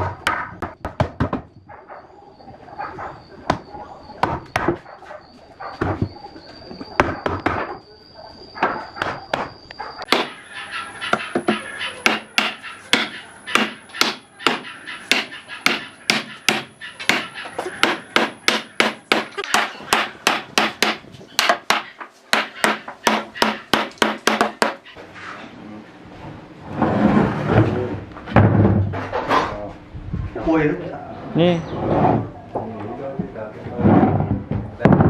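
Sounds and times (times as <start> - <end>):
wood scraping and knocking: 26.6 - 29.6, 31.7 - 35.0.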